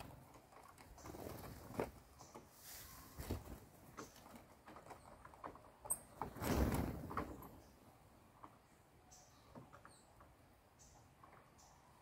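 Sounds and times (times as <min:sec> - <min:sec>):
birds wingbeats: 0:00.0 - 0:07.8
birds tapping on a roof: 0:00.0 - 0:12.0.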